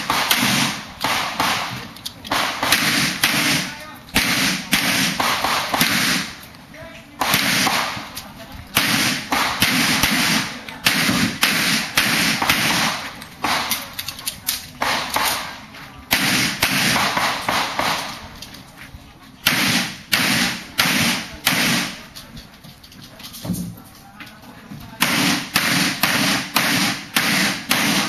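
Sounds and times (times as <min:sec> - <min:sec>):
pistol shots: 0:00.0 - 0:06.4, 0:07.2 - 0:08.1, 0:08.7 - 0:13.8, 0:14.8 - 0:18.2, 0:19.4 - 0:22.0, 0:25.0 - 0:28.0.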